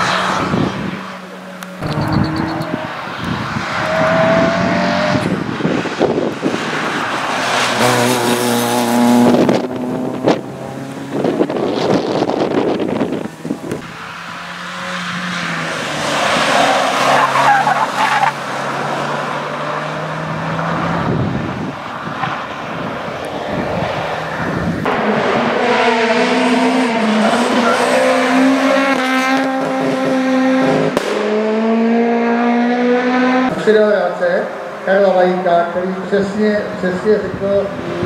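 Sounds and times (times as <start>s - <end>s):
tyres squealing and skidding: 0.0s - 5.3s, 13.4s - 21.0s, 25.7s - 28.8s
car engines revving: 0.0s - 38.0s.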